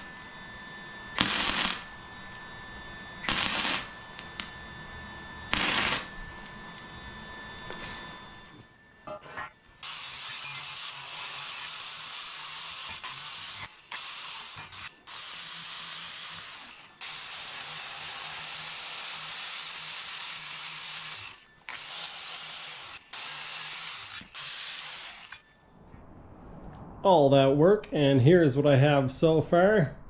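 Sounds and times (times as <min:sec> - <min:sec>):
angle grinder grinding steel: 0:03.2 - 0:04.5, 0:05.5 - 0:06.9, 0:09.8 - 0:25.4.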